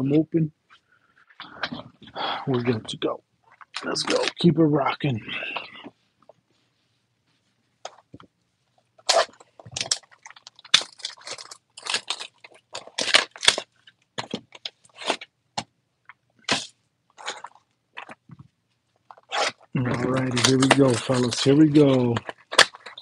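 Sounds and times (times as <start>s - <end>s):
wrapping and cardboard crinkling: 3.5s - 4.5s, 9.0s - 15.3s, 19.0s - 23.0s.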